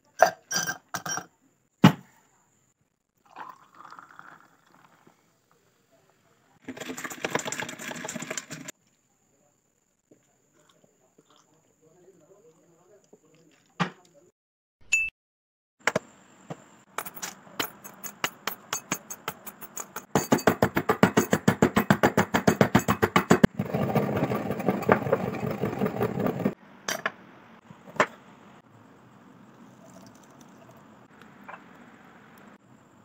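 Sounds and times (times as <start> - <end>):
metal pestle pounding in mortar: 17.6 - 23.5
grinding in metal mortar: 17.8 - 26.6.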